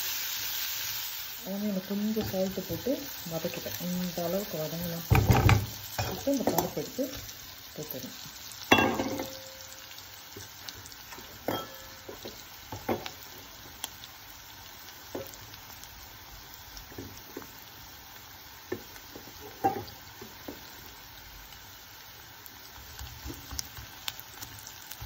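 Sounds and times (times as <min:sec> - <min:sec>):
onions frying in oil: 0:00.0 - 0:25.0.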